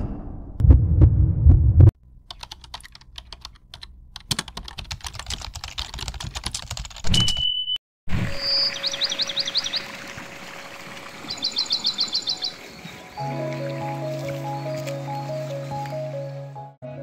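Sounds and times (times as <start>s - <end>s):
low thud: 0.0s - 1.9s
deep bass hit: 0.0s - 2.0s
rapid irregular crackling clicks: 2.3s - 7.0s.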